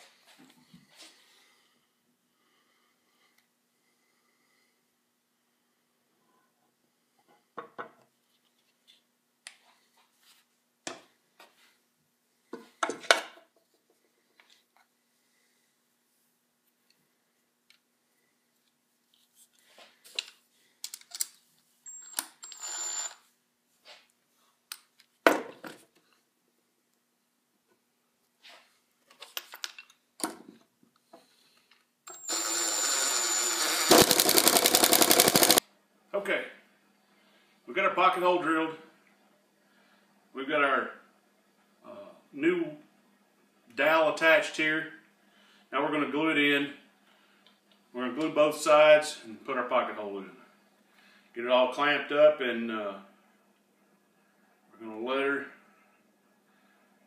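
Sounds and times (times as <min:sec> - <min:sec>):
cordless drill whining: 0:21.9 - 0:23.2, 0:32.1 - 0:35.6
drill rattle: 0:21.9 - 0:23.2, 0:32.1 - 0:35.6.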